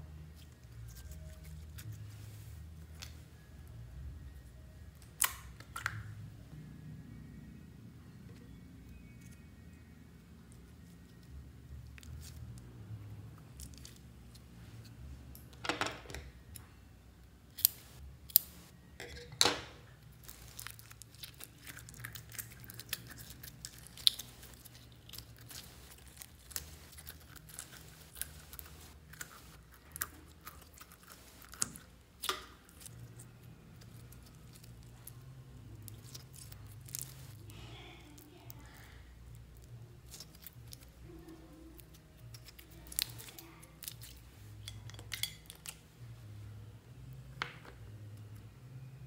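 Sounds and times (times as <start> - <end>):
low steady hum: 0.0 - 49.0
slime squelching and popping: 20.2 - 32.9.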